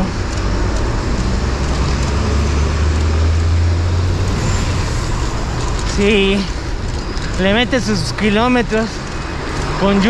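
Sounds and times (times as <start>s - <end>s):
traffic rushing: 0.0s - 10.0s
vehicle engine passing close: 0.0s - 10.0s.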